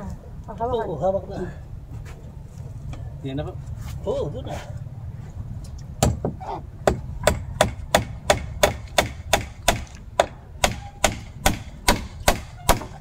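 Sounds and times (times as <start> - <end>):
hand tool striking wood: 6.0 - 13.0.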